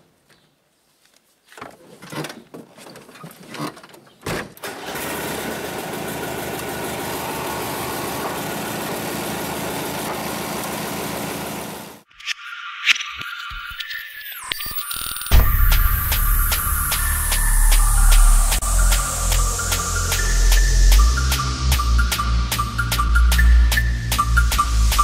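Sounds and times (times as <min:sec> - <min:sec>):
car engine starting and idling: 0:04.6 - 0:12.0.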